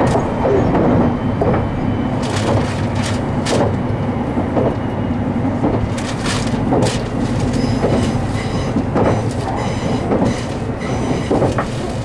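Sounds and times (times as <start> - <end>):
train running rumble: 0.0 - 12.0
wheels clicking over rail joints: 0.0 - 12.0
faint high wheel squeal: 7.5 - 12.0.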